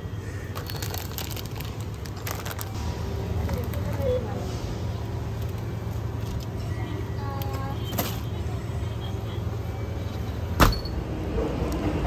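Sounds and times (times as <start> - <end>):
steady low rumble: 0.1 - 7.3.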